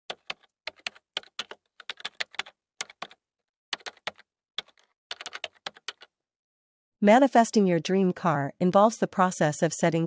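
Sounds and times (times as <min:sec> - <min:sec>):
keyboard typing: 0:00.1 - 0:06.1.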